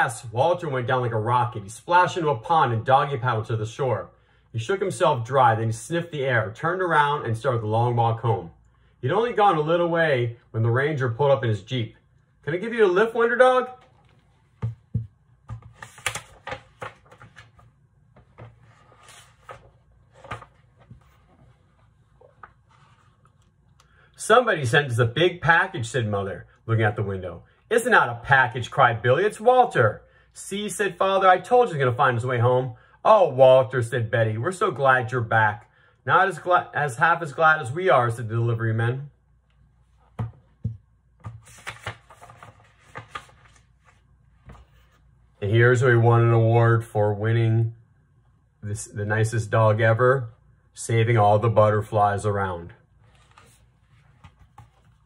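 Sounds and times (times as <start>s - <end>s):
book handling taps and clicks: 13.8s - 21.2s, 40.1s - 45.0s, 53.2s - 55.0s
paper rustle: 13.8s - 23.4s, 41.2s - 45.0s, 53.0s - 55.0s.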